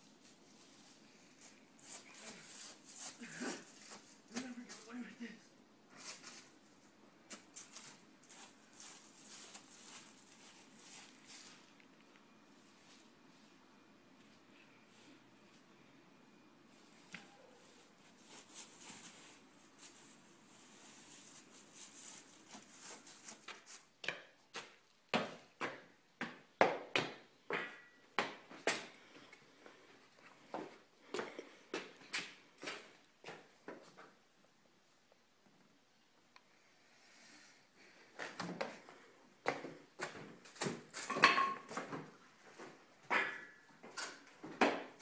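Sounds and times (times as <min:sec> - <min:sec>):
faint background noise: 0:00.0 - 0:45.0
dry leaves rustling: 0:07.6 - 0:11.7.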